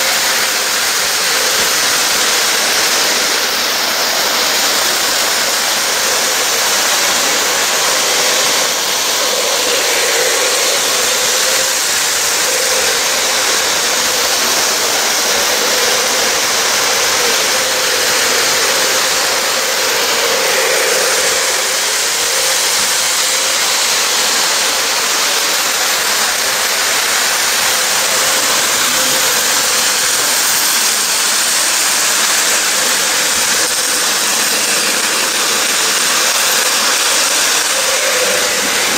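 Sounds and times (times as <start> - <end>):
hiss: 0.0 - 38.9
model train motor hum: 0.0 - 38.9
wheels rumbling on rails: 0.0 - 38.9.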